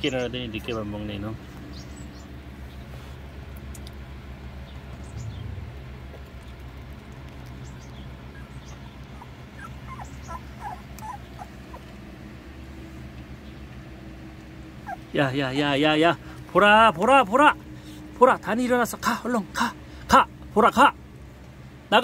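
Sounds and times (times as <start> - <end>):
steady low hum: 0.0 - 22.0
puppies whimpering and squeaking: 7.4 - 12.1, 14.8 - 15.2.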